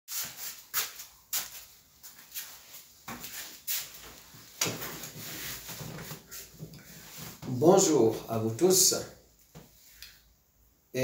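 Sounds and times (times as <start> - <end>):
clothing rustling: 0.1 - 7.6.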